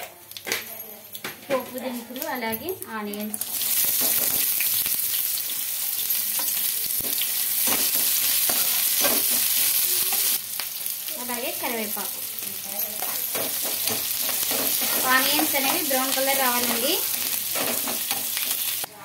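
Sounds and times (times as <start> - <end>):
onions sizzling in hot oil: 2.1 - 18.9
spoon scraping a pan: 3.5 - 4.6, 6.3 - 10.4, 12.8 - 18.7.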